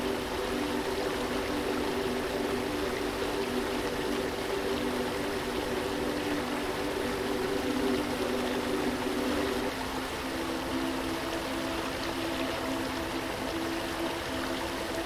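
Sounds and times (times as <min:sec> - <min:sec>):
soft background music chord: 0:00.0 - 0:15.0
waterfall rushing: 0:00.0 - 0:15.0.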